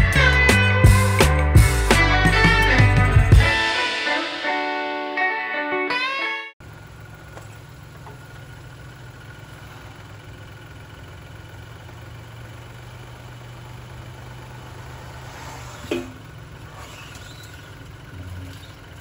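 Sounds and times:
car engine idling: 0:06.6 - 0:19.0
sharp squeak dropping in pitch: 0:15.1 - 0:17.8.

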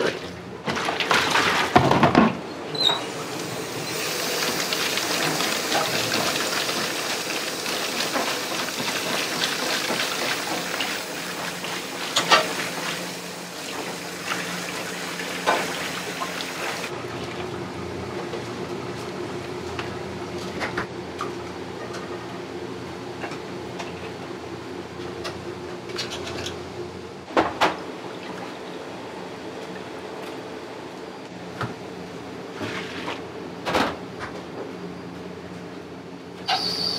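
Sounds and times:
tap water running into sink: 0:03.7 - 0:16.9.

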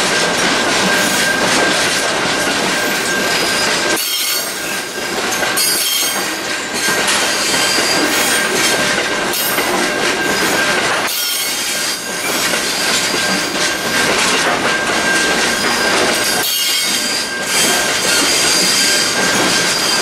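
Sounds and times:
wheels rumbling on rail: 0:00.0 - 0:20.0
train wheels squealing: 0:02.7 - 0:20.0.

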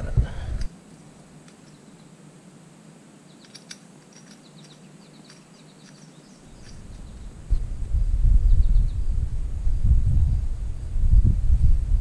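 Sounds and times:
small birds chirping: 0:00.4 - 0:02.2, 0:03.2 - 0:07.6, 0:08.4 - 0:09.2
light metallic clicks: 0:03.4 - 0:07.2
low rumble: 0:06.6 - 0:12.0.

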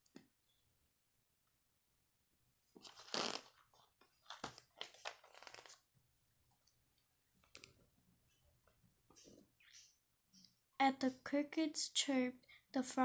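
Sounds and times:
paper pages rustling: 0:02.8 - 0:05.9.

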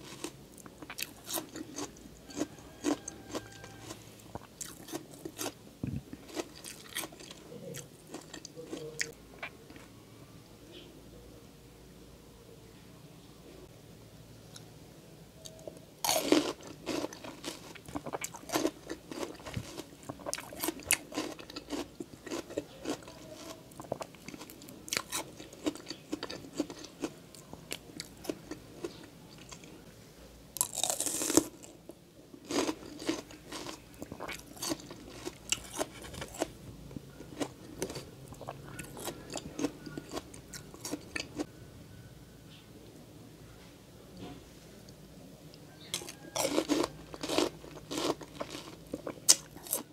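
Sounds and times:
crunching bites of fruit: 0:00.0 - 0:05.6, 0:16.0 - 0:29.6, 0:30.6 - 0:31.7, 0:32.4 - 0:36.6, 0:45.9 - 0:49.9
wet chewing: 0:00.1 - 0:09.9, 0:16.1 - 0:29.7, 0:32.4 - 0:41.5, 0:45.8 - 0:49.9.

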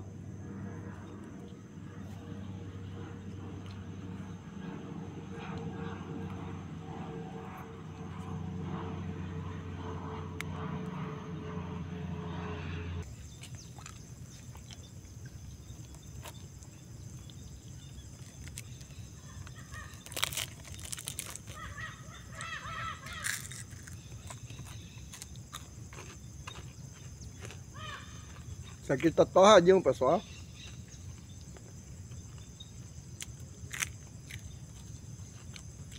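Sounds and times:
steady engine hum: 0:00.0 - 0:35.9
bird's harsh calls: 0:19.2 - 0:20.9, 0:21.5 - 0:25.0.

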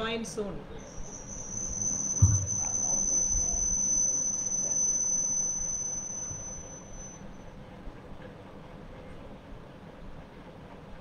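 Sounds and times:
high-pitched whine: 0:00.8 - 0:07.4
low thump: 0:02.1 - 0:02.8.

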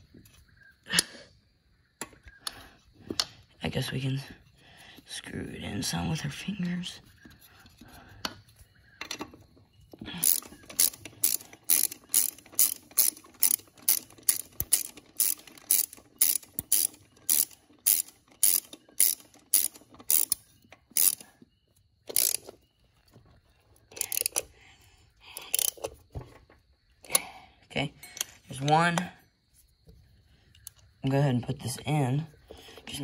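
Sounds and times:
ratcheting wrench clicking: 0:10.2 - 0:21.2, 0:22.1 - 0:22.6, 0:23.9 - 0:24.5, 0:25.4 - 0:26.0.

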